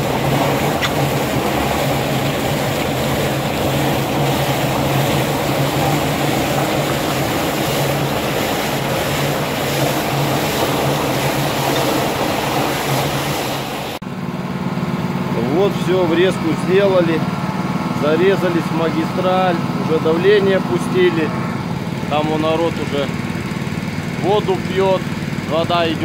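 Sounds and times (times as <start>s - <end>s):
water gushing from valve: 0.0s - 14.0s
low engine hum: 0.0s - 26.0s.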